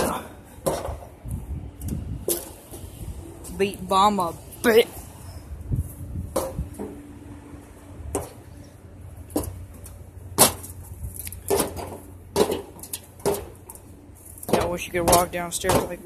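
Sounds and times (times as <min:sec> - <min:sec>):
footsteps on metal bleachers: 0:00.0 - 0:03.6, 0:09.2 - 0:16.0.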